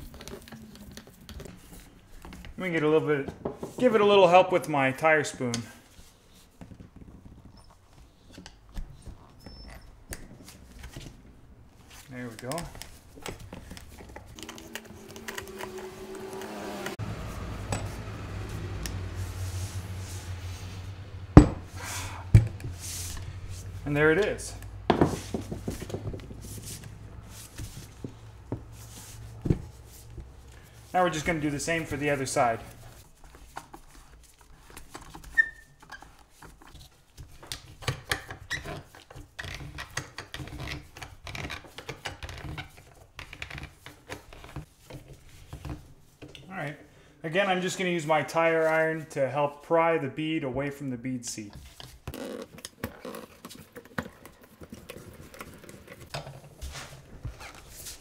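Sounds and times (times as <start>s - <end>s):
tire rubbing and scraping on bench: 9.2s - 37.1s, 51.6s - 58.0s
short sharp squeak: 9.4s - 10.0s, 35.3s - 36.0s.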